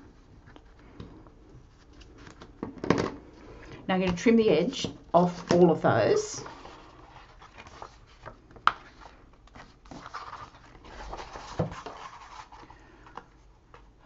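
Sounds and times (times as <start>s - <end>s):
card and paper rustling: 6.0s - 13.9s.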